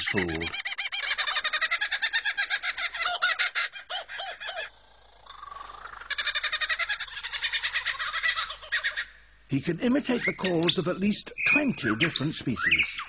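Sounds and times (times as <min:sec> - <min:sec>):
lyrebird mimicking bird calls: 0:00.0 - 0:04.7, 0:05.3 - 0:09.3.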